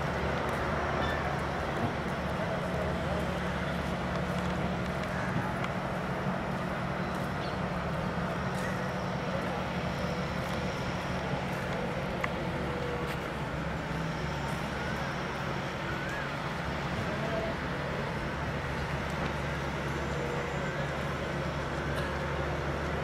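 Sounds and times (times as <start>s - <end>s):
engine low hum: 0.0s - 23.0s
faint distant voices: 8.2s - 22.6s.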